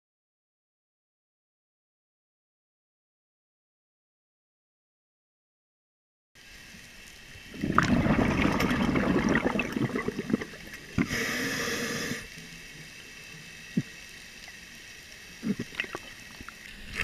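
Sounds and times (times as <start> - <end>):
gurgling exhaled bubbles: 7.4 - 12.3, 15.4 - 17.0
regulator hissing inhale: 10.9 - 12.4.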